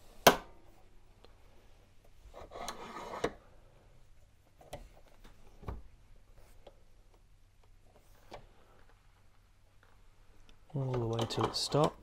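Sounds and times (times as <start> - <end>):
bench vise grinding: 2.4 - 3.4.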